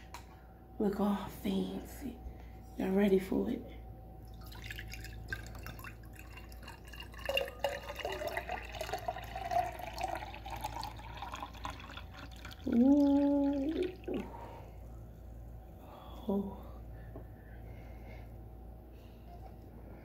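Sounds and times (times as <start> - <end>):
drink pouring into a glass: 4.3 - 14.3
person humming ooh: 12.7 - 14.3.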